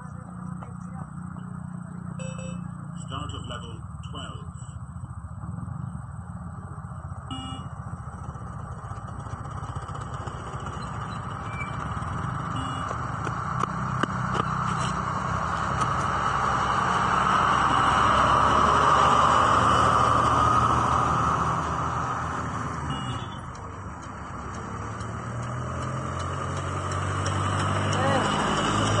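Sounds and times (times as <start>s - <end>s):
truck driving past: 7.0s - 29.0s
sharp ticks: 21.6s - 29.0s.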